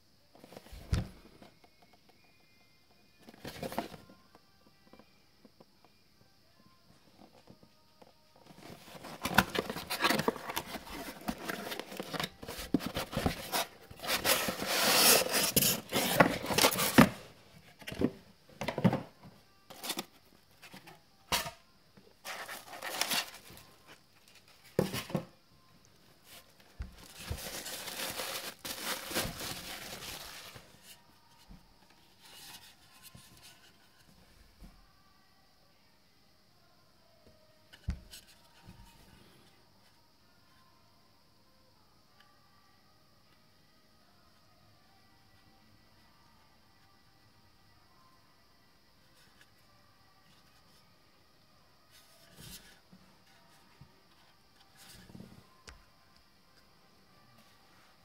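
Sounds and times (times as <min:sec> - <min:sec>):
cardboard rustling and tearing: 0:08.8 - 0:17.2, 0:22.3 - 0:23.6, 0:27.0 - 0:30.7
plastic wrap rustling: 0:27.0 - 0:30.8.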